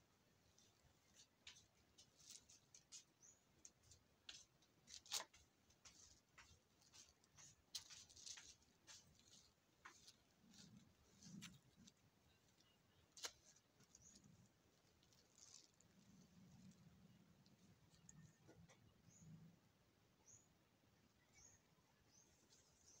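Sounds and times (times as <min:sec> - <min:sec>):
clothing rustling: 0:04.3 - 0:18.1.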